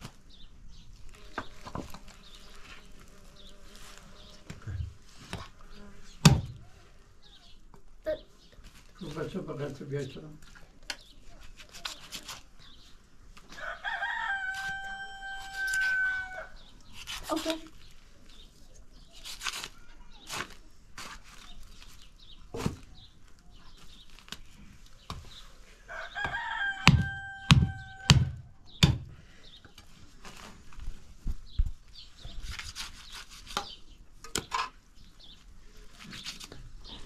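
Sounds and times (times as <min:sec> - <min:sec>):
rooster crowing: 0:13.6 - 0:16.6, 0:25.9 - 0:28.4
knife chopping meat on wood: 0:26.2 - 0:29.1.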